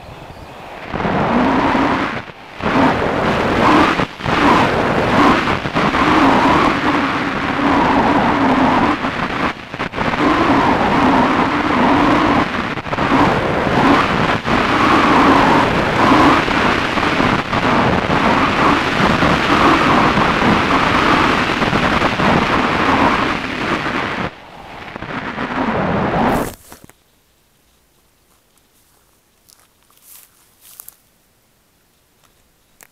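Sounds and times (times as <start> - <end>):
wind buffeting microphone: 0.0 - 26.8.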